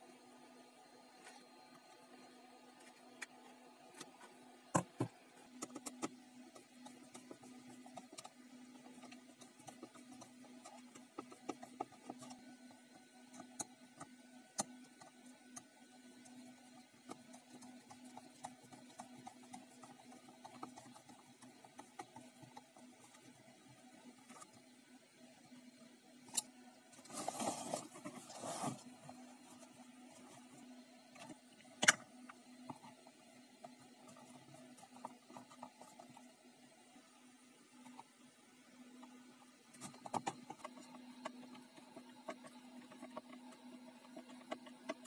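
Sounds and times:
scraping and rubbing: 0:27.0 - 0:31.4.

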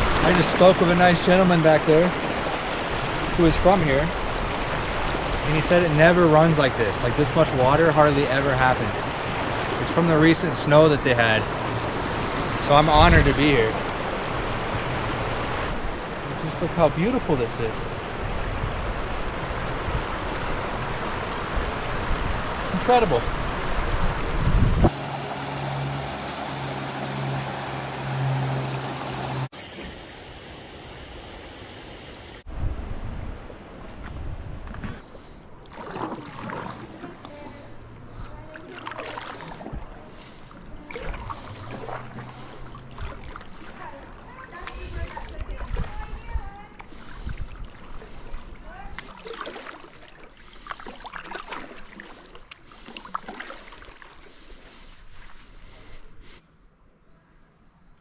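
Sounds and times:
gently flowing water hiss: 0:00.0 - 0:18.2, 0:24.8 - 0:32.5, 0:39.1 - 0:56.5
water rushing over rocks: 0:00.0 - 0:24.2, 0:24.8 - 0:29.7.

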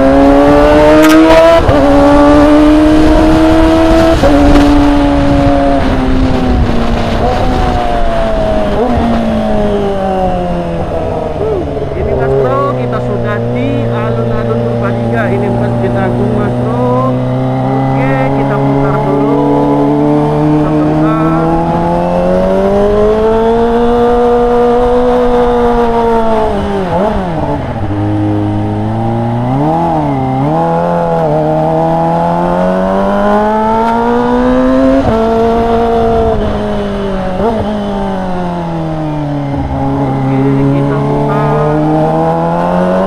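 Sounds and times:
motorcycle engine revving: 0:00.0 - 0:43.0.

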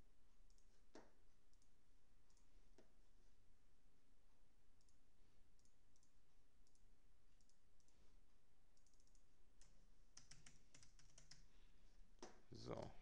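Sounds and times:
computer mouse clicks: 0:00.5 - 0:01.7, 0:04.8 - 0:05.0, 0:05.6 - 0:08.0, 0:08.7 - 0:11.5
keyboard keystrokes: 0:08.8 - 0:11.4.

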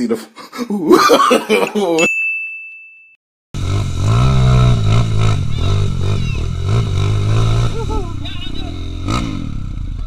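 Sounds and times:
high bell-like ding: 0:02.0 - 0:03.2
motorcycle engine: 0:03.6 - 0:10.0.

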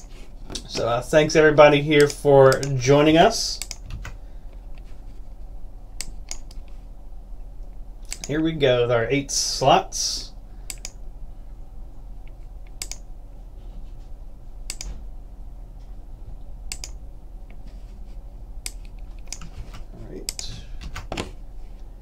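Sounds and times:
faint low hum: 0:00.0 - 0:22.0
computer mouse clicking: 0:03.6 - 0:04.2, 0:06.0 - 0:06.8, 0:08.0 - 0:08.3, 0:10.7 - 0:11.0, 0:12.3 - 0:13.0, 0:14.7 - 0:15.0, 0:16.7 - 0:17.6, 0:18.6 - 0:21.1.

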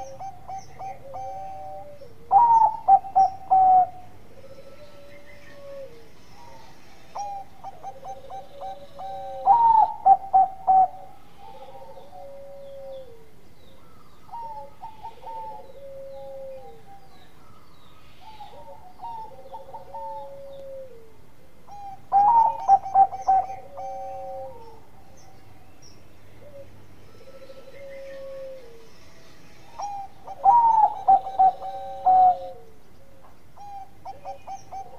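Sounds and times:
dove cooing: 0:00.0 - 0:34.9.

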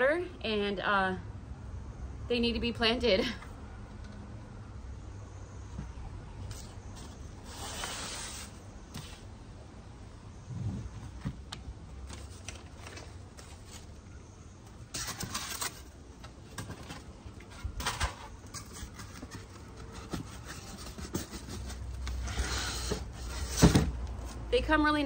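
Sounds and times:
plastic trays and cardboard scraping: 0:14.7 - 0:24.4.

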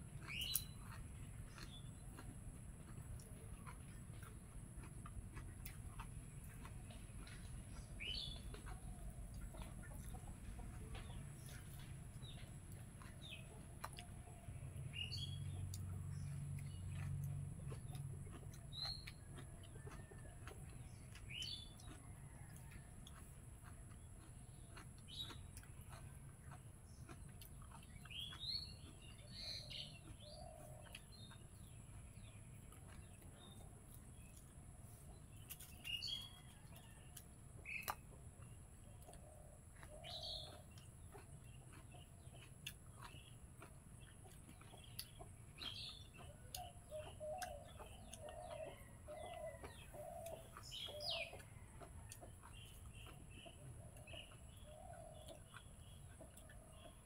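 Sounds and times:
faint birds chirping: 0:00.0 - 0:57.0
chicken clucking: 0:00.1 - 0:57.0.

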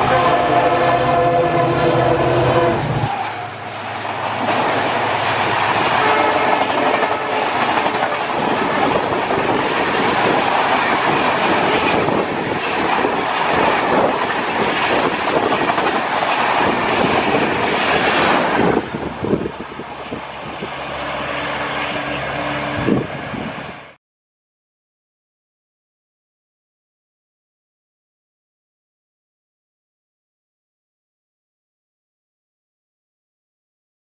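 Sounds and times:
diesel locomotive horn: 0:00.0 - 0:08.6.

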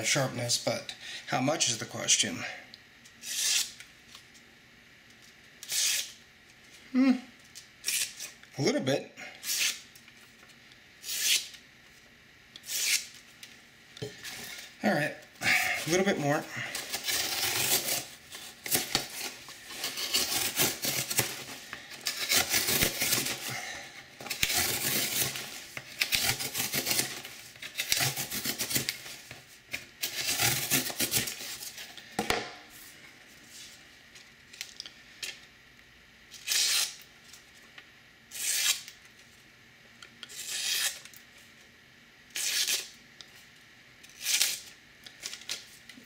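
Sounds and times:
knife slicing paper: 0:12.6 - 0:13.1, 0:16.8 - 0:23.5, 0:24.3 - 0:29.1, 0:30.0 - 0:31.7, 0:36.4 - 0:37.0, 0:38.3 - 0:38.9, 0:40.3 - 0:41.0, 0:42.3 - 0:42.9
knife slicing cardboard: 0:16.9 - 0:18.1, 0:18.7 - 0:21.5.

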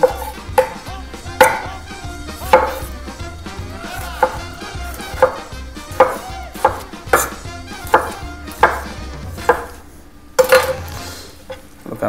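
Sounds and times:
knife knocking on wooden board: 0:01.4 - 0:01.7, 0:02.5 - 0:02.9, 0:05.1 - 0:09.8.

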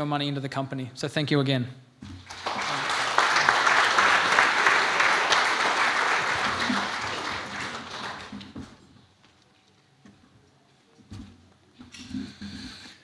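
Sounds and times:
audience applause: 0:02.2 - 0:08.8.

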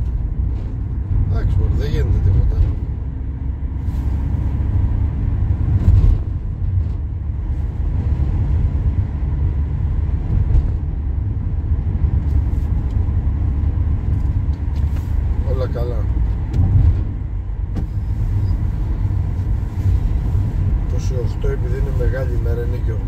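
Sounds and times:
car road and engine rumble: 0:00.0 - 0:23.0
thump: 0:17.7 - 0:18.0.

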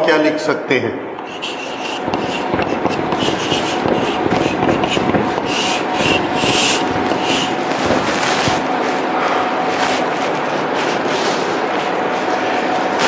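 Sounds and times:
chalk scratching on blackboard: 0:01.2 - 0:08.6.

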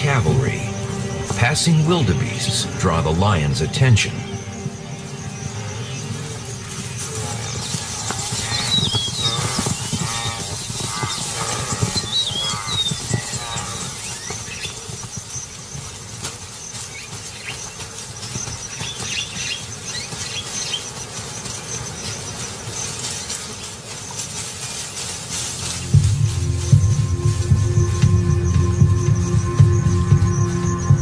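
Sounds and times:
steady ambient hiss: 0:00.0 - 0:11.9
high squealing calls: 0:00.0 - 0:31.0.

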